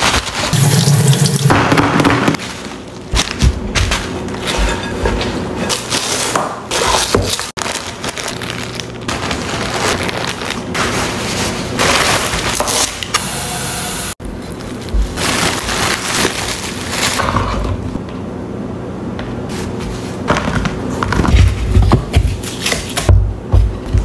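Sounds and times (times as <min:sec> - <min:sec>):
kale leaves rustled and torn: 0:00.0 - 0:00.6, 0:05.8 - 0:13.0, 0:14.4 - 0:17.3
plastic bag crinkling: 0:00.0 - 0:00.9, 0:02.4 - 0:04.4, 0:07.3 - 0:13.0, 0:14.3 - 0:17.4
produce bag crinkling: 0:00.0 - 0:00.9, 0:02.4 - 0:04.4, 0:07.2 - 0:13.0, 0:14.3 - 0:17.4.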